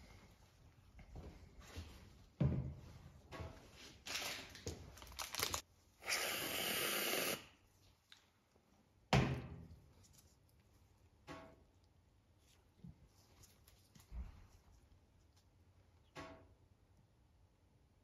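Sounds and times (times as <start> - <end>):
whipped cream can hissing: 6.0 - 7.6.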